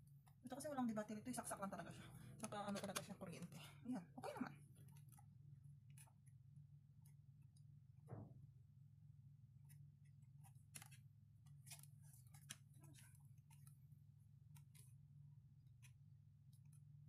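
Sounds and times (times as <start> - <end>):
faint low hum: 0.0 - 17.0
card being handled: 9.7 - 13.8.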